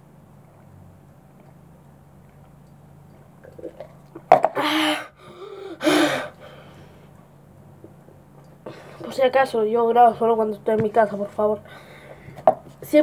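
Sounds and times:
faint room hum: 0.0 - 13.0
boy gasping for air: 4.6 - 7.1.

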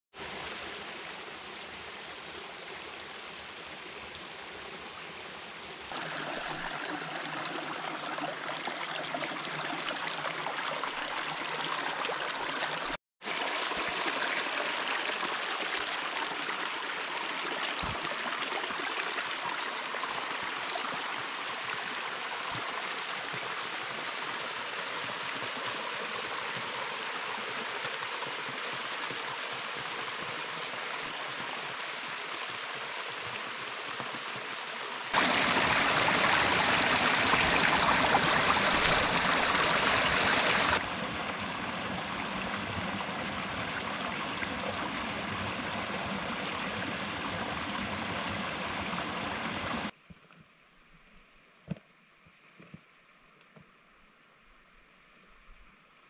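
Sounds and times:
creek splashing over stones: 5.7 - 50.0
water pouring down rock chute: 35.2 - 40.8.

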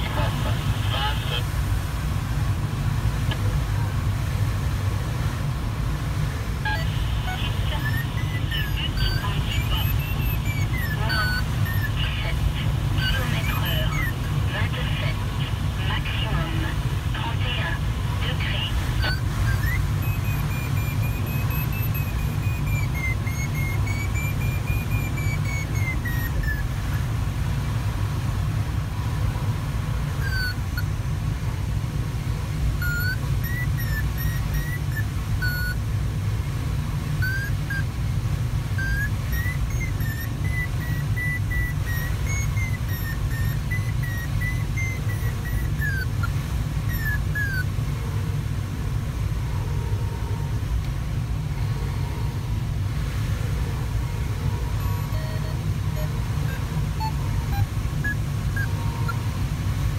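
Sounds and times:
airflow rushing around cockpit: 0.0 - 59.9
variometer electronic tone: 6.6 - 27.3, 29.1 - 48.7, 53.2 - 59.9.

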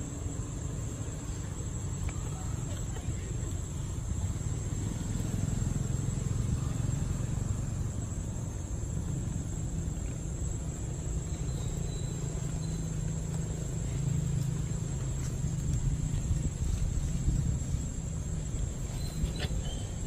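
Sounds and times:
steady low rumble: 6.1 - 20.0.

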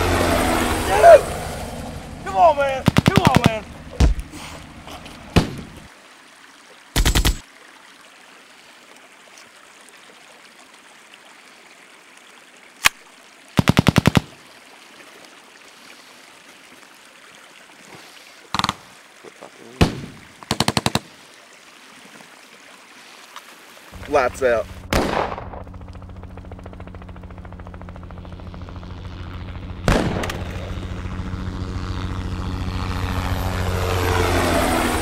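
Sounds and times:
automatic gunfire bursts: 2.8 - 3.6, 7.0 - 7.4, 13.6 - 14.3, 19.8 - 21.1
single gunshots: 2.8 - 4.2, 5.4 - 5.8, 19.8 - 21.1, 24.9 - 25.6, 29.9 - 30.7.

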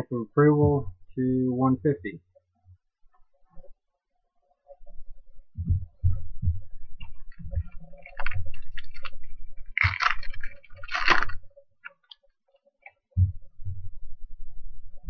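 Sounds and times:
foil wrapper crinkling and ripping: 7.8 - 12.2.

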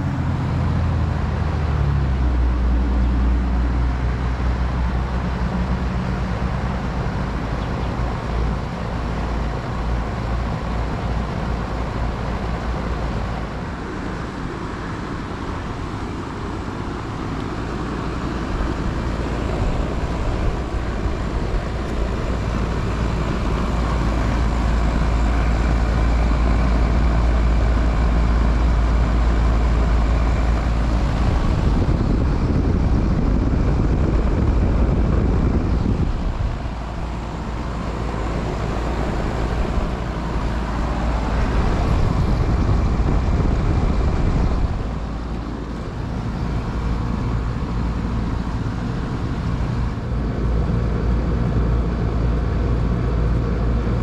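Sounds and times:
air conditioner unit humming: 7.4 - 54.0.

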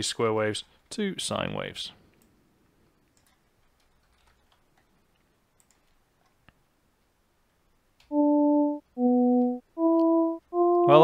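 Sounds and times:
keyboard and mouse clicks: 3.2 - 5.0, 5.6 - 6.6.

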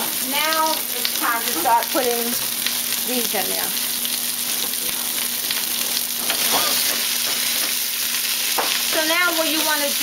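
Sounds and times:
onions sizzling in a pan: 0.0 - 10.0.

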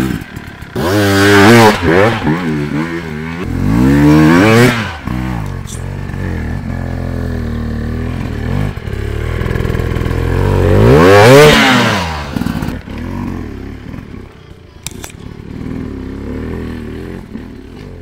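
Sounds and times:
motorcycle engine revving: 0.0 - 18.0
sharp clicks: 14.8 - 15.3.

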